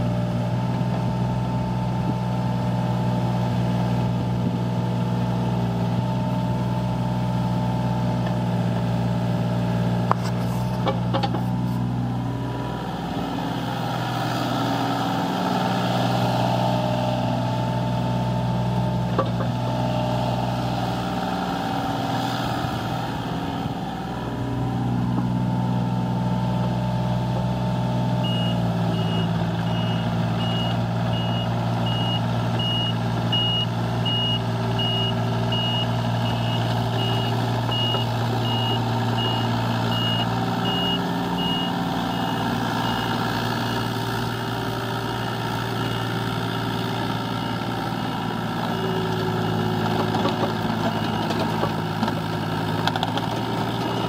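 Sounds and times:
excavator diesel engine running: 0.0 - 54.0
travel alarm beeping: 28.2 - 43.0.

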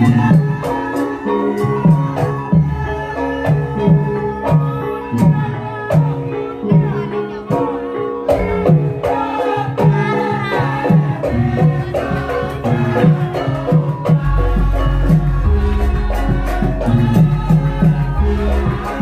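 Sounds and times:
hand drum strokes: 0.0 - 19.0.

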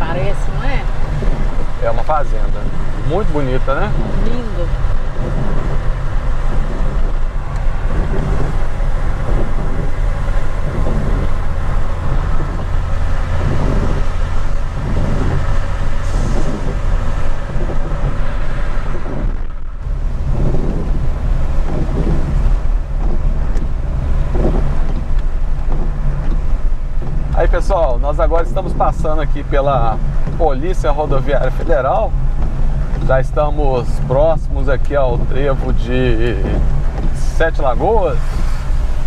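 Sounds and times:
engine and tyre rumble: 0.0 - 39.0
windshield wipers sweeping: 0.0 - 39.0
wet-road tyre hiss: 0.1 - 39.0.

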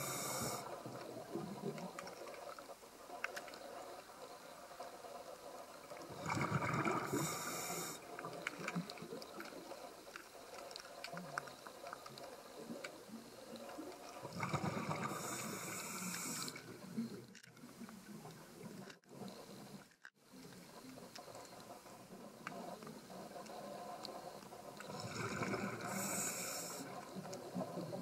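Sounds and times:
diver breathing through regulator: 0.0 - 0.8, 6.8 - 8.1, 14.6 - 16.7, 23.6 - 27.1
faint clicking and crackling: 0.0 - 28.0.

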